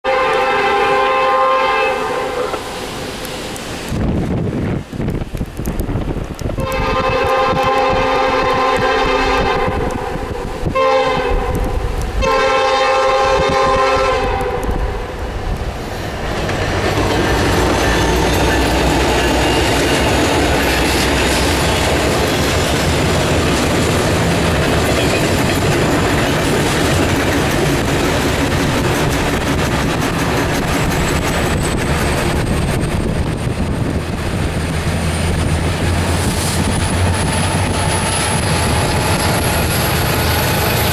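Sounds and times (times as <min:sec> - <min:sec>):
locomotive air horn blasts: 0:00.0 - 0:02.9, 0:06.6 - 0:15.0
train engine and wheels on rail: 0:00.0 - 0:40.9.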